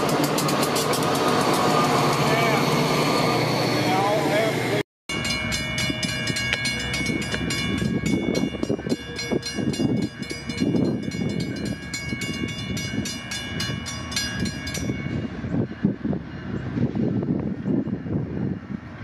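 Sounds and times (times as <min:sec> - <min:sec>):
railroad crossing bell ringing: 0:05.1 - 0:18.8.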